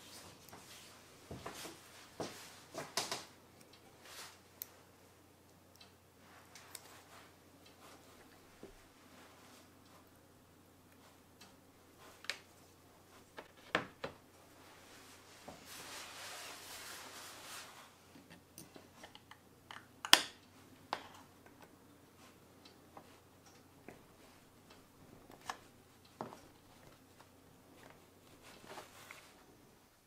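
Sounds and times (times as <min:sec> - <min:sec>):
soft rubbing: 0:14.5 - 0:18.3, 0:23.9 - 0:29.8.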